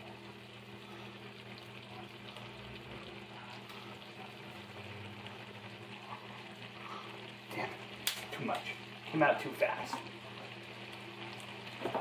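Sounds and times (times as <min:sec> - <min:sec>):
steady low hum: 0:00.0 - 0:12.0
vegetables sizzling in a skillet: 0:00.0 - 0:12.0.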